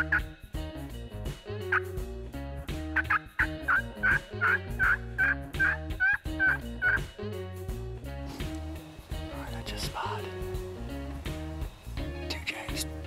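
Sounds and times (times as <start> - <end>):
turkey calling: 0.0 - 0.3, 1.7 - 1.9, 2.9 - 7.1.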